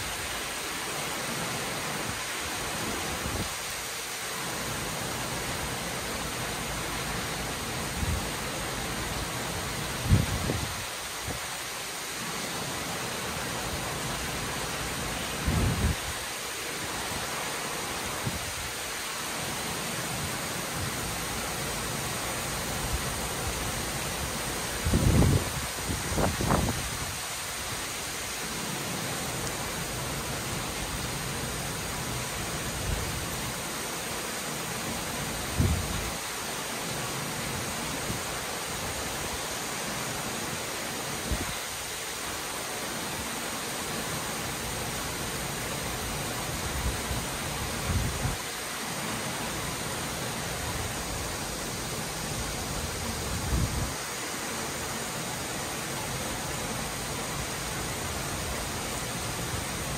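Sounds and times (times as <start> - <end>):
torrential rain hissing: 0.0 - 59.9.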